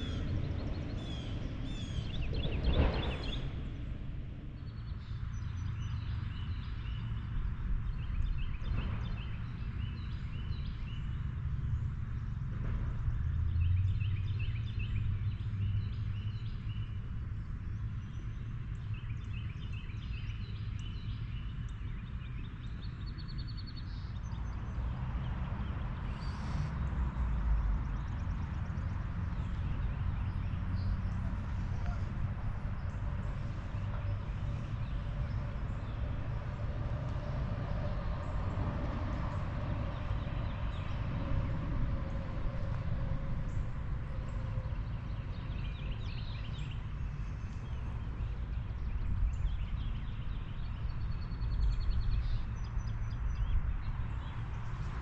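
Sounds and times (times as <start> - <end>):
small birds chirping and trilling: 0.0 - 4.0
steady low rumble: 0.0 - 55.0.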